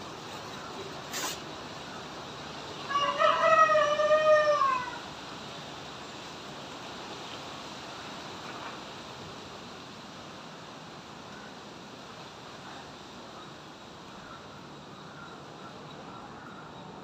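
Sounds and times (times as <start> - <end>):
steady hiss: 0.0 - 2.9, 5.0 - 17.0
rooster crowing: 2.9 - 5.1.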